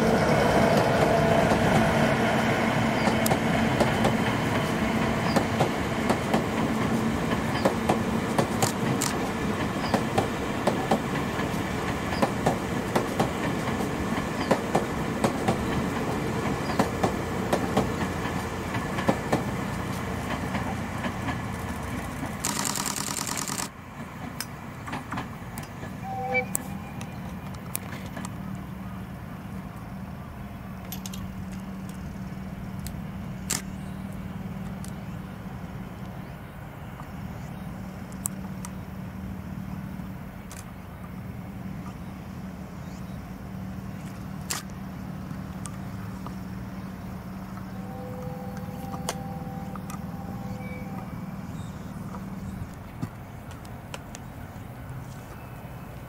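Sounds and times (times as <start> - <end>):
vehicle engine humming: 0.0 - 56.0
train wheels clicking over rail joints: 0.2 - 28.7
sharp clicks: 7.6 - 9.3, 21.9 - 23.7
faint whine: 44.9 - 53.5.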